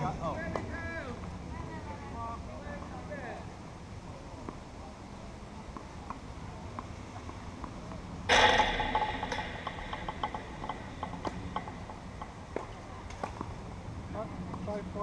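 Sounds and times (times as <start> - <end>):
tennis balls being hit: 5.7 - 13.5
ball striking chain-link fence: 8.3 - 13.4.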